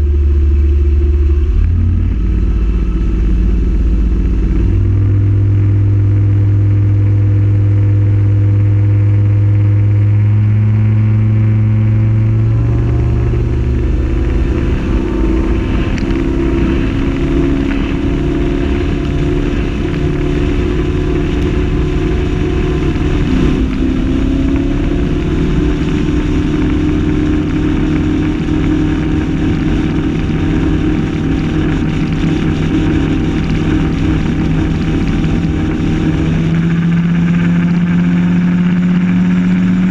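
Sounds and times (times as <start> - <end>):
boat engine running: 0.0 - 39.9.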